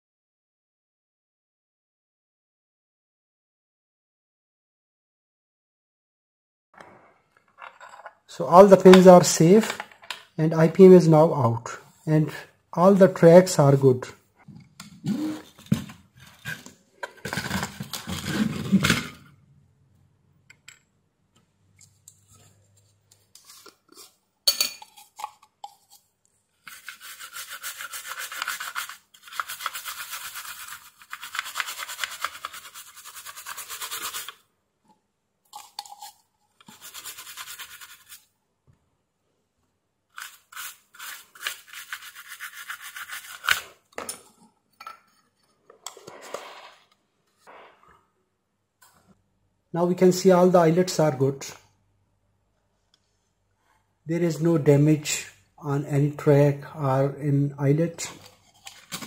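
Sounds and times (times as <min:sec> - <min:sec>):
toothbrush scrubbing circuit board: 0:26.7 - 0:34.4, 0:35.6 - 0:38.3, 0:40.2 - 0:43.6.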